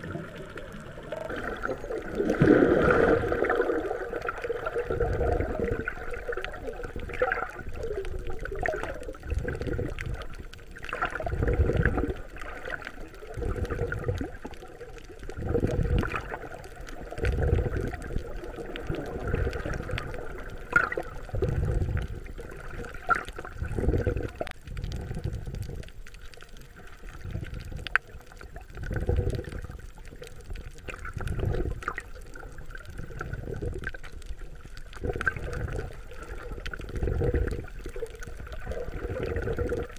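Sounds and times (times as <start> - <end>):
underwater rushing surges: 0.0 - 39.9
faint clicks: 4.2 - 39.9.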